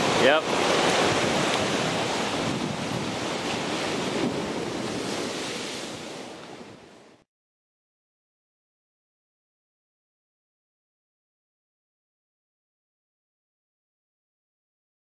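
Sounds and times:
wind buffeting microphone: 0:00.0 - 0:07.1
surf washing on rocky shore: 0:00.0 - 0:07.2.

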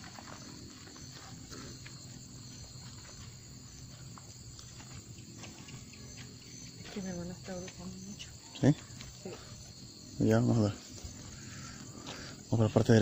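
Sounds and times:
footsteps on concrete: 0:00.0 - 0:07.0
crickets chirping: 0:00.0 - 0:13.0.

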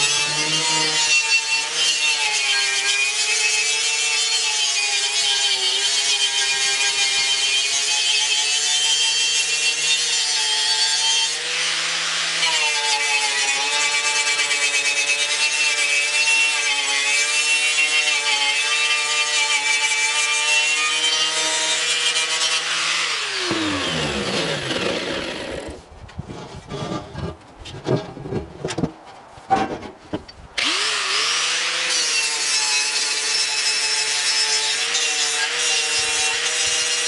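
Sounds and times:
angle grinder motor whining: 0:21.7 - 0:25.8.

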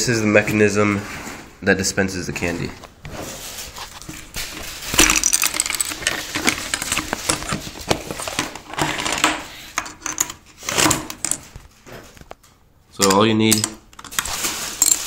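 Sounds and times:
plastic bricks clattering: 0:03.8 - 0:11.6, 0:13.0 - 0:15.0.

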